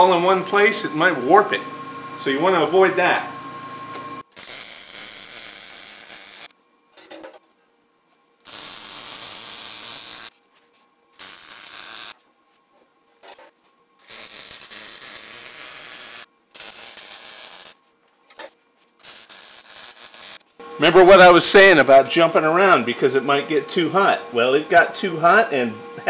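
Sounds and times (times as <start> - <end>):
welder arc hissing: 4.2 - 6.5, 8.4 - 10.3, 11.1 - 12.2, 14.0 - 17.8, 19.0 - 21.7.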